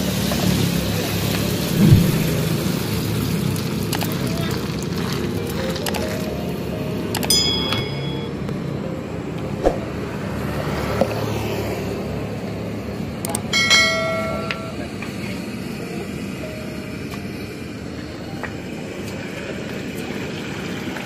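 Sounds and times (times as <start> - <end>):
oil frying in a wok: 0.0 - 1.7, 2.4 - 7.0, 11.3 - 21.0
passing road traffic: 0.0 - 19.0.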